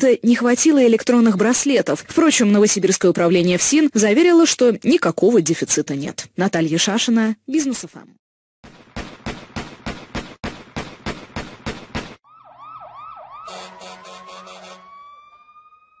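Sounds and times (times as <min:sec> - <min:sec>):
swooping siren-like warble: 0:12.2 - 0:16.0
rising electronic tone: 0:12.3 - 0:16.0.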